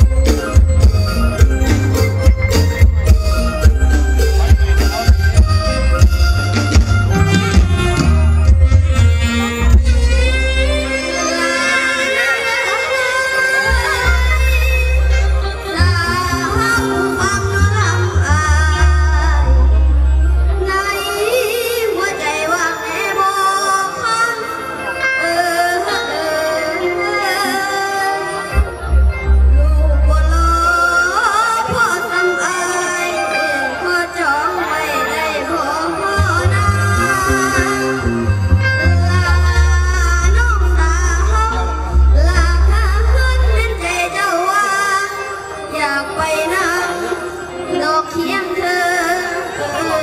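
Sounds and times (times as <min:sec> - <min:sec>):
band backing music: 0:00.0 - 0:50.0
boy singing: 0:39.0 - 0:50.0.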